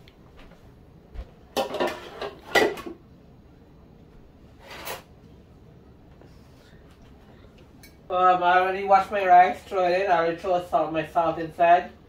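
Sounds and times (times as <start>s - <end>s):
dishes and pots clattering: 1.5s - 3.0s.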